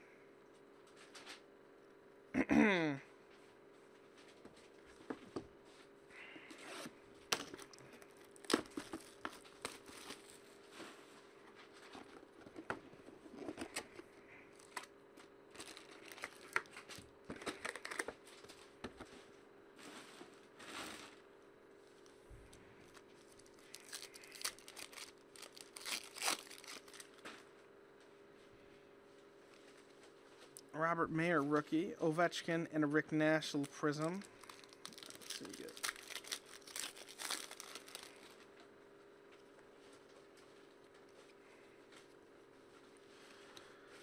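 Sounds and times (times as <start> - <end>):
faint steady hum: 0.0 - 44.0
foil wrappers crinkling: 7.3 - 11.0, 15.5 - 18.7, 22.9 - 27.3, 33.5 - 38.5
cardboard and paper tearing: 23.5 - 27.2, 34.3 - 38.4.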